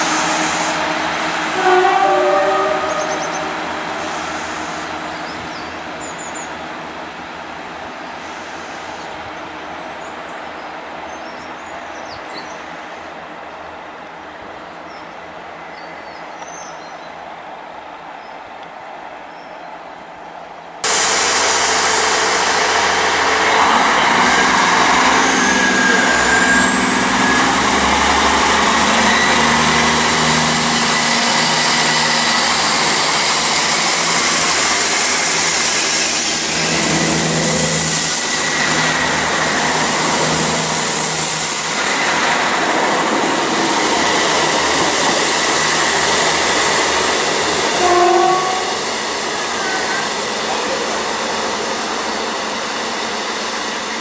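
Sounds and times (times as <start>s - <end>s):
train horn toot: 0.0s - 4.1s, 23.2s - 32.7s, 47.6s - 50.2s
diesel train engine: 0.0s - 20.0s, 20.8s - 54.0s
wheels rumbling on rail: 0.0s - 54.0s.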